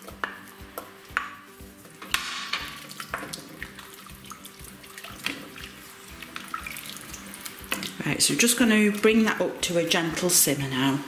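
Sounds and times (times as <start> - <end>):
spoon knocking against pan: 0.0 - 3.4
liquid sloshing in pan: 0.0 - 11.0.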